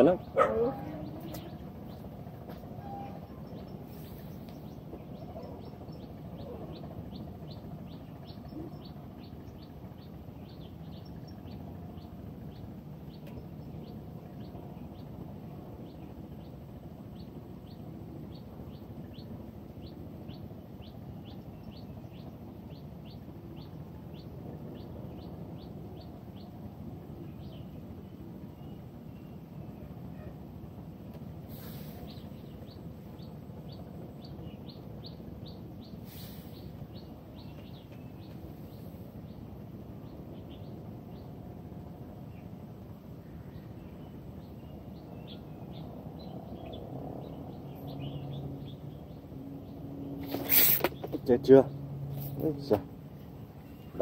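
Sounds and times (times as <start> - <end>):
low outdoor background noise: 0.0 - 54.0.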